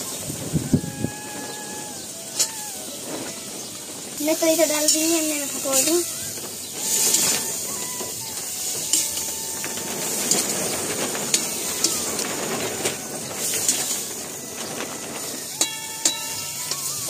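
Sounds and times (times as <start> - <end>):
vegetables sizzling in hot oil: 0.0 - 17.0
metal ladle scraping pan: 6.8 - 10.5, 11.3 - 12.3, 13.4 - 14.1, 15.2 - 17.0.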